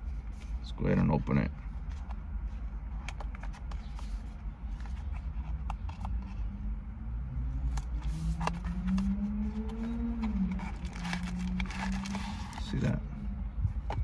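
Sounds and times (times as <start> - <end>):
steady low rumble: 0.0 - 14.0
cardboard box clicks and rustles: 7.7 - 13.0.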